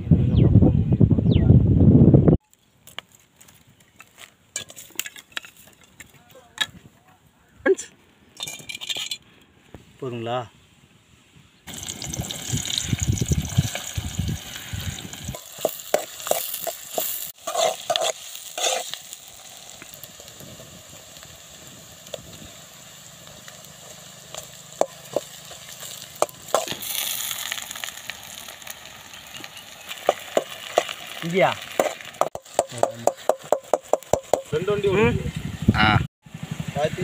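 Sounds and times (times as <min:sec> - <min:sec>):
onions sizzling in hot oil: 0:11.7 - 0:34.6.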